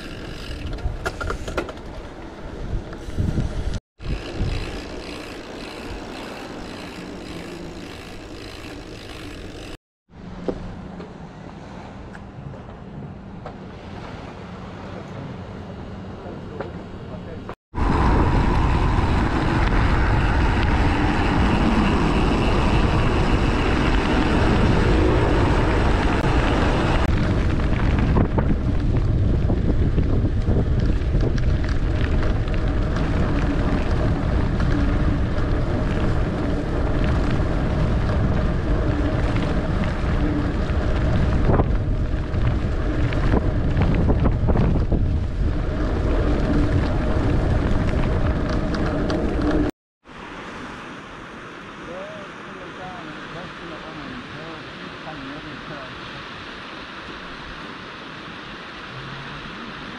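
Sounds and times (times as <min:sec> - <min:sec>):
wind buffeting microphone: 0:02.3 - 0:09.7, 0:17.7 - 0:49.7.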